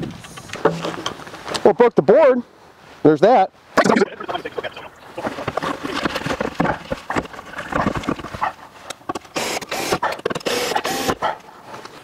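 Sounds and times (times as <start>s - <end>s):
wooden board knocking and scraping: 5.2s - 9.2s
cordless drill running: 9.4s - 11.2s.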